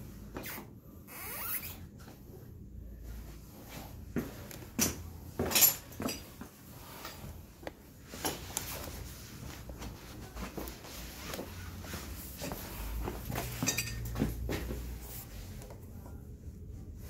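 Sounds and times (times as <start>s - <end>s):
metal tools clinking and knocking: 4.8s - 6.4s, 13.6s - 14.2s.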